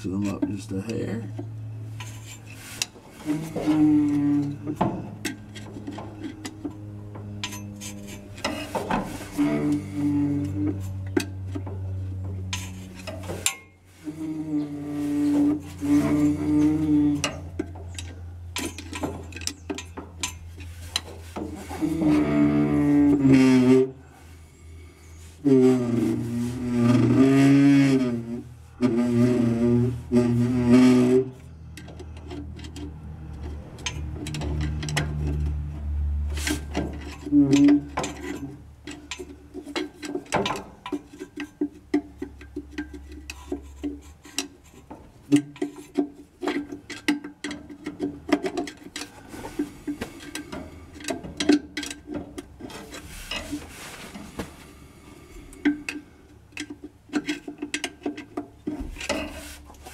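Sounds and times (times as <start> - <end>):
brake tool clicking and scraping: 0.0 - 13.8, 14.6 - 23.4, 31.0 - 54.3, 55.3 - 59.9
brake shoes groaning against drum: 0.0 - 59.9.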